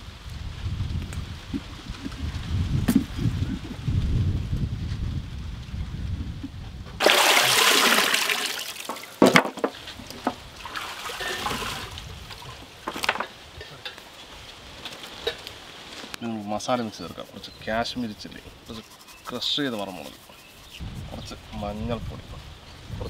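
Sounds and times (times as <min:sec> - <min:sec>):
water splashing and pouring: 0:07.0 - 0:09.5, 0:10.4 - 0:12.5.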